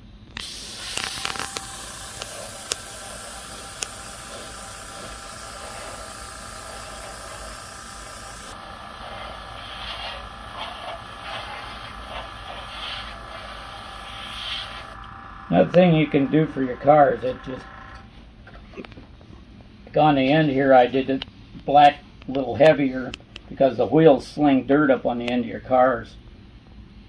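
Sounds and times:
airbrush hissing: 0.0 - 18.0.

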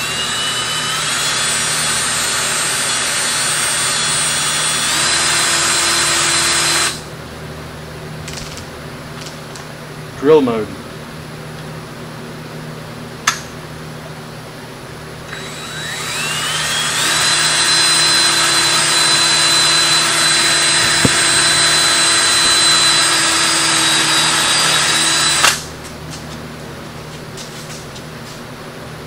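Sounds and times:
cordless drill whining: 0.0 - 7.0, 15.3 - 25.6.

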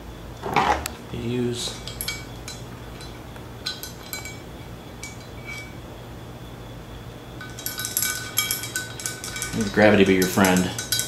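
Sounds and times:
screwdriver clinking on metal: 1.7 - 4.4, 7.4 - 11.0.

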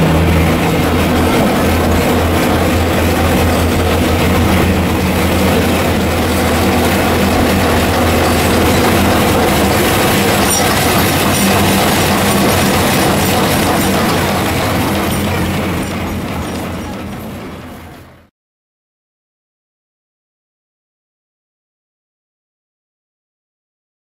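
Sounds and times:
locomotive engine hum: 0.0 - 18.3
train wheels on rails: 0.0 - 18.3.

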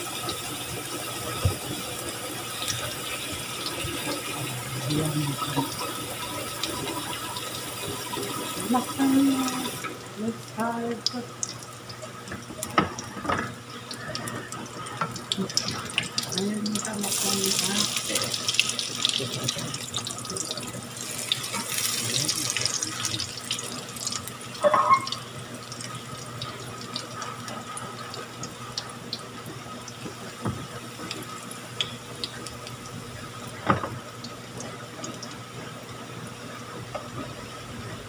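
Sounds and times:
pancakes sizzling in hot oil: 19.9 - 29.0.

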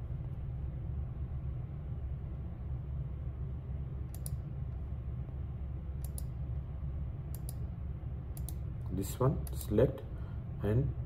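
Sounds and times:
steady low hum: 0.0 - 11.0
computer mouse clicking: 4.1 - 4.4, 6.0 - 6.4, 7.3 - 7.6, 8.3 - 8.6.

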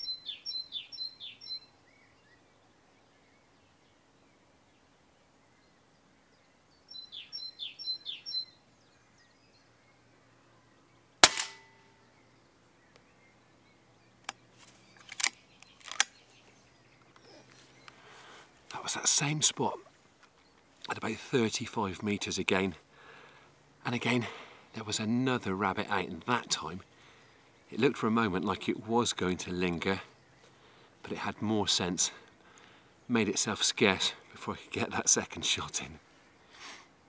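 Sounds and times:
bird chirping: 0.0 - 37.0
air rifle shot: 11.2 - 11.8
sharp clicks: 15.0 - 16.2.

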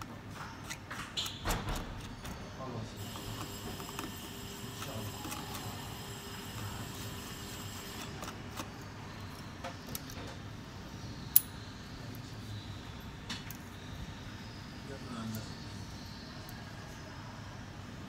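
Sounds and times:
small metallic tool clicks: 11.3 - 11.6.

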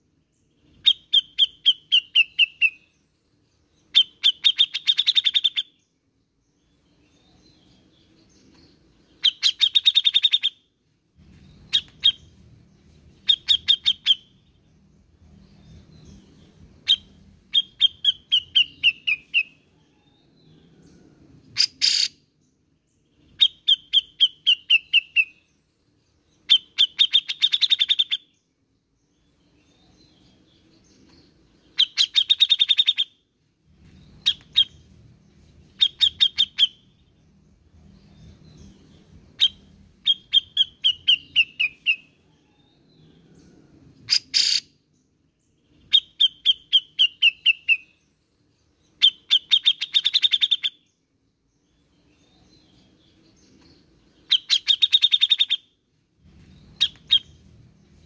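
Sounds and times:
bird chattering calls: 9.2 - 10.6, 21.6 - 22.2, 31.8 - 33.1, 44.1 - 44.7, 54.3 - 55.6, 56.8 - 57.3.

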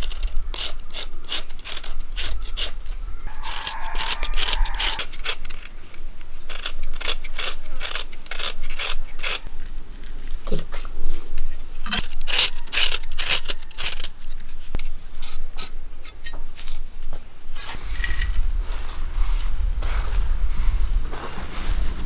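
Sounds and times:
knife scraping jaggery: 0.0 - 9.5, 11.8 - 16.4
low rumble with soft hiss: 13.1 - 22.0.

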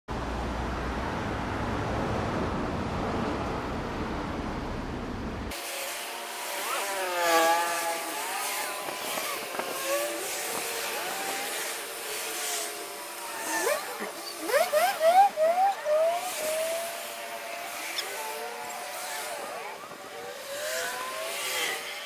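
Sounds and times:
cars driving past: 0.1 - 5.5
wavering pitched tone: 13.3 - 21.8.

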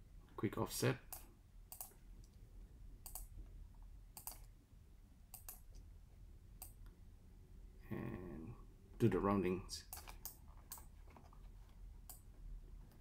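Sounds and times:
computer mouse clicks: 1.1 - 2.4, 3.0 - 3.3, 4.1 - 4.6, 5.3 - 5.9, 9.9 - 11.4, 12.0 - 12.3.

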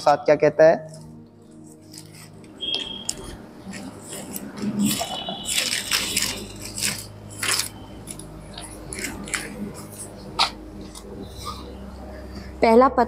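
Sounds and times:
paper pages rustling: 0.9 - 11.1.

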